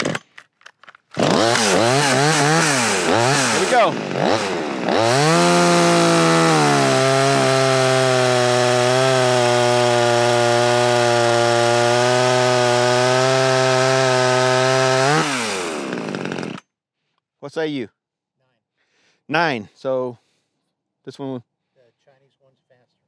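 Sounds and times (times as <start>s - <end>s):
chainsaw cutting log: 0.0s - 0.3s, 1.1s - 16.7s.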